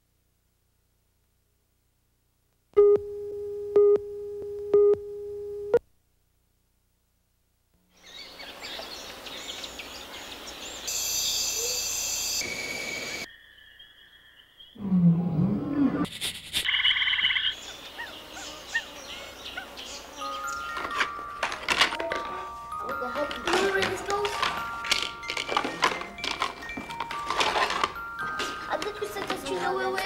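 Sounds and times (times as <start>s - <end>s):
bird calls: 8.0s - 14.8s, 16.6s - 21.2s.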